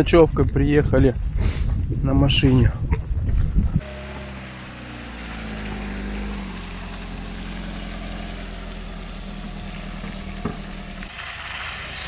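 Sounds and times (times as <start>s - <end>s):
car engine running: 3.8s - 11.6s.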